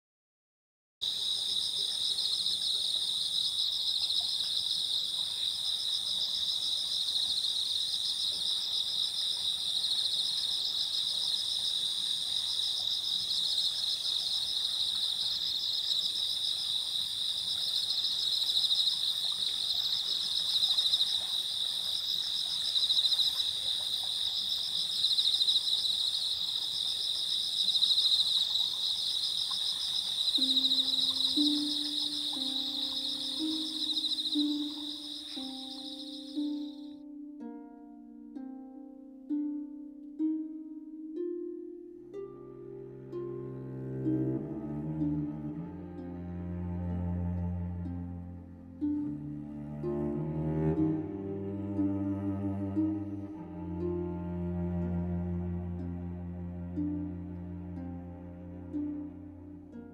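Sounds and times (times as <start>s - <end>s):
insects trilling: 1.0s - 37.0s.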